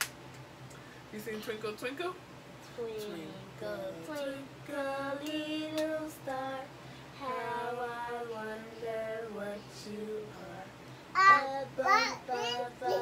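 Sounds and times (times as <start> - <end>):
woman singing: 2.9 - 10.8
girl singing: 3.0 - 13.0.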